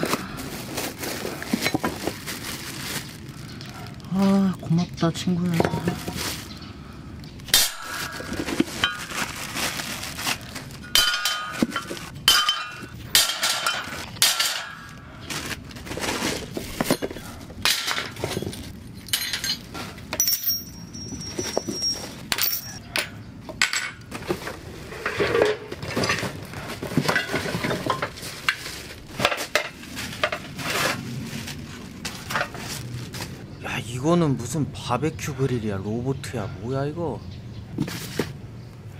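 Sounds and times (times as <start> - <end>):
plastic wrap crinkling: 0.0 - 6.6, 7.4 - 12.2, 14.8 - 16.9, 25.8 - 33.4
metal grill parts clattering: 10.8 - 14.9, 16.1 - 31.0.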